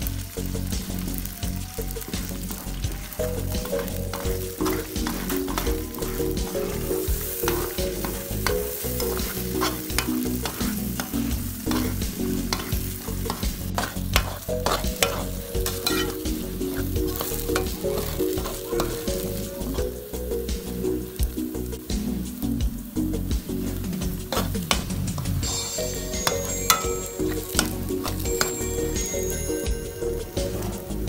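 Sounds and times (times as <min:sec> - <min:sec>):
ghee frying: 0:00.0 - 0:31.0
metal spatula scraping a pot: 0:03.1 - 0:19.8, 0:24.3 - 0:29.4.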